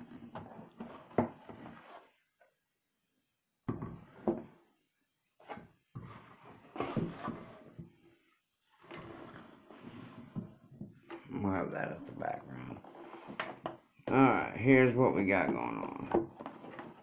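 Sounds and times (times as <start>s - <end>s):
cardboard rubbing and sliding: 0.1s - 2.2s, 5.4s - 8.0s, 8.6s - 10.7s, 12.8s - 13.7s, 16.3s - 17.0s.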